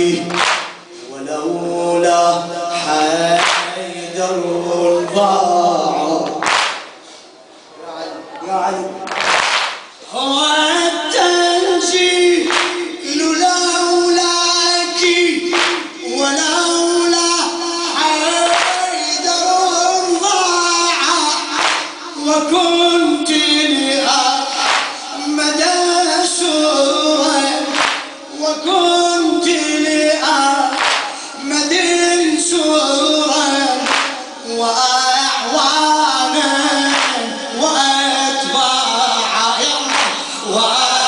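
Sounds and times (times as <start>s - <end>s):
man chanting through microphone: 0.0s - 6.9s, 7.7s - 9.3s, 10.0s - 41.0s
chest beating in unison: 0.3s - 1.0s, 15.4s - 16.0s, 30.7s - 31.2s.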